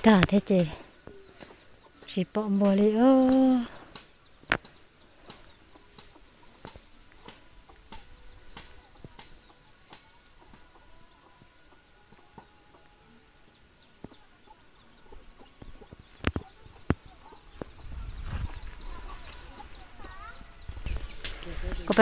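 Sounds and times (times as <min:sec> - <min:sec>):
high-pitched insect drone: 0:05.0 - 0:22.0
chicken clucking: 0:05.2 - 0:13.2, 0:13.8 - 0:22.0.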